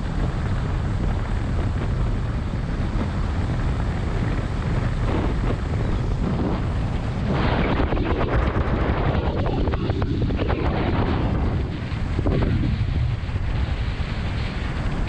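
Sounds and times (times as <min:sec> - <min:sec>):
road noise: 0:00.0 - 0:15.0
vehicle engine running: 0:00.0 - 0:15.0
wind buffeting microphone: 0:00.0 - 0:15.0.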